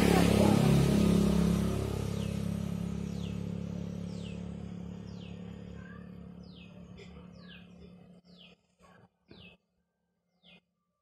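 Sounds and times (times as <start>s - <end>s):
vehicle engine passing by: 0.0s - 8.5s.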